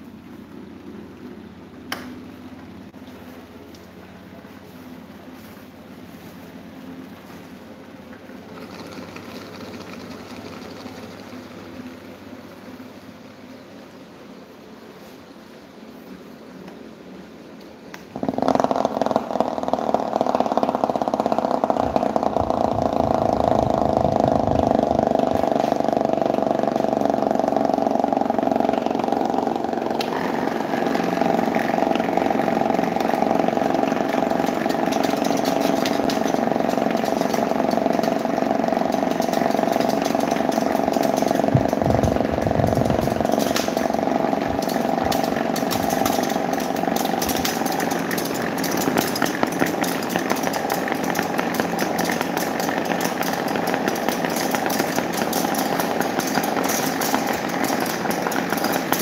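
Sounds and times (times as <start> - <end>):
electric fans humming: 0.0 - 59.0
fast rattle: 8.3 - 12.6, 18.1 - 59.0.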